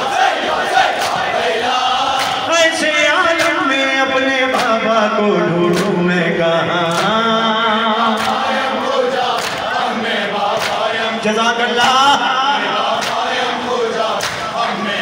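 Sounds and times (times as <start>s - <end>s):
men chanting along: 0.0s - 15.0s
man singing lament: 2.4s - 8.8s, 10.8s - 12.9s
chest-beating slaps: 5.7s - 6.0s, 10.5s - 10.9s, 13.0s - 13.3s, 14.2s - 14.5s.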